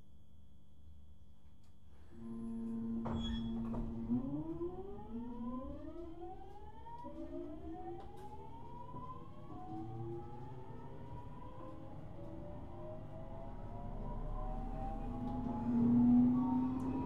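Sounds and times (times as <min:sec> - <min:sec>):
train motor whine rising: 0:09.8 - 0:17.0.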